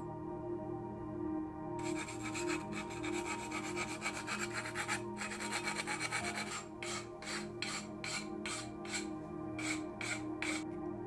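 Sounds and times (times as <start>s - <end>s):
metal file rasping on metal: 1.8s - 10.6s.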